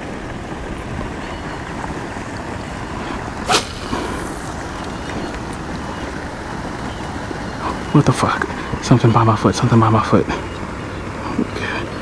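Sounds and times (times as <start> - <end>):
fishing rod swishing: 3.5 - 5.2.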